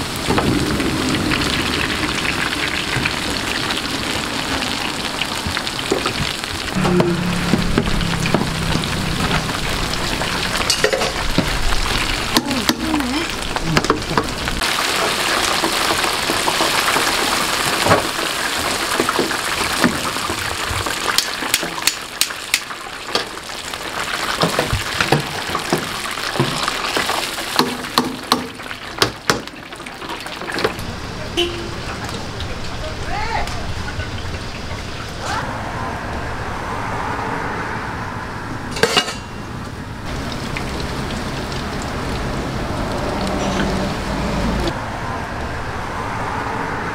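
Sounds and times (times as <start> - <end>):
fritters sizzling in hot oil: 1.4 - 30.9, 40.0 - 44.7
skimmer clinking against steel: 38.8 - 39.4.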